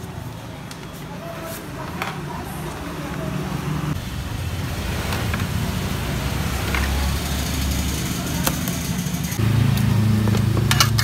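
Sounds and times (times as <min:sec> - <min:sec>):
steady engine hum: 0:02.3 - 0:11.0
vehicle engine running: 0:03.1 - 0:11.0
utensils clinking on pots: 0:10.2 - 0:11.0.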